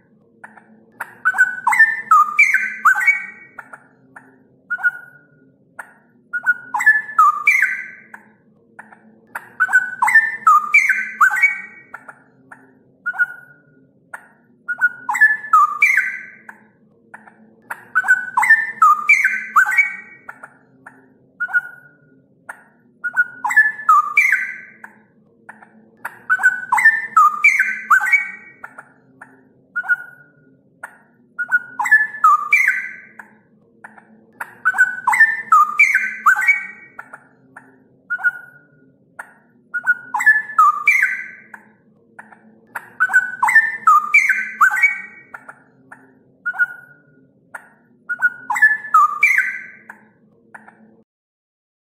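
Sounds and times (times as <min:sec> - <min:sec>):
bird singing whistled notes: 0:01.0 - 0:03.8, 0:04.7 - 0:05.3, 0:06.3 - 0:08.2, 0:09.4 - 0:12.1, 0:13.1 - 0:13.6, 0:14.7 - 0:16.5, 0:17.8 - 0:20.6, 0:21.4 - 0:22.0, 0:23.0 - 0:24.9, 0:26.2 - 0:28.8, 0:29.8 - 0:30.4, 0:31.4 - 0:33.2, 0:34.6 - 0:37.2, 0:38.1 - 0:38.7, 0:39.7 - 0:41.6, 0:42.8 - 0:45.5, 0:46.4 - 0:47.0, 0:48.1 - 0:49.9.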